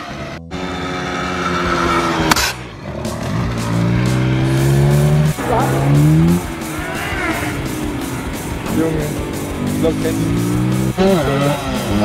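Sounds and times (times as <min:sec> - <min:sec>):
dirt bike engine accelerating: 0:00.4 - 0:12.0
background music with steady beat: 0:02.6 - 0:12.0.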